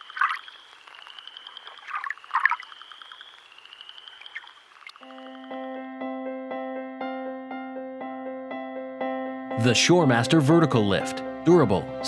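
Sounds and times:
frogs calling: 0.0 - 5.5
insects trilling: 0.0 - 5.5
piano-like keyboard music: 5.0 - 12.0.

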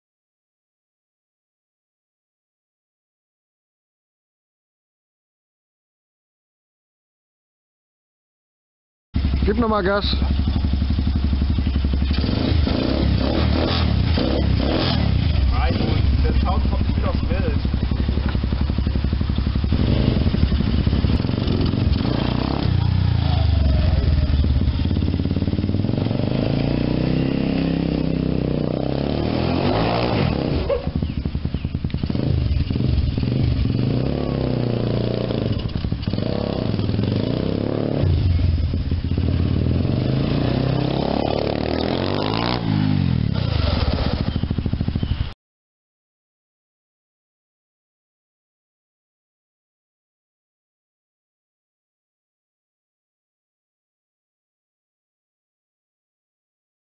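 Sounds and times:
small engine revving: 9.2 - 45.4.

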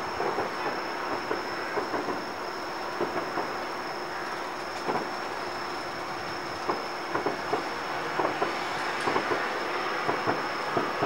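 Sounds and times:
distant firework pops: 3.0 - 3.5, 4.8 - 5.1, 6.6 - 9.4.

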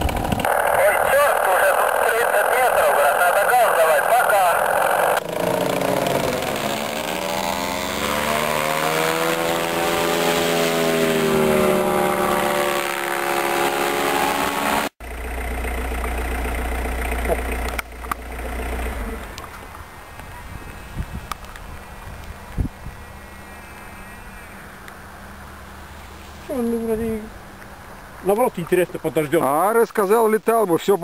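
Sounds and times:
paramotor engine droning: 0.0 - 28.0
wind rumble on microphone: 19.6 - 23.4.

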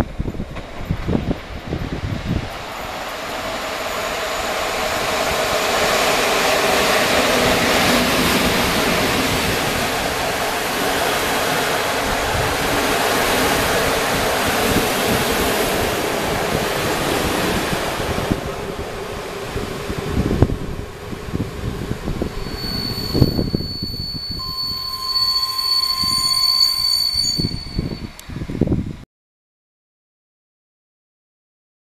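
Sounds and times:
train passing on rails: 0.0 - 28.9.

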